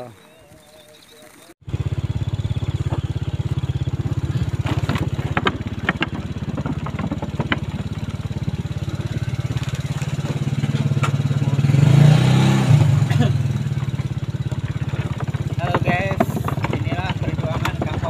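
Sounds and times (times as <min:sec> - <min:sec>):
motorcycle engine running: 0:00.2 - 0:18.0
sharp rattling knocks: 0:01.7 - 0:12.1, 0:12.8 - 0:18.0.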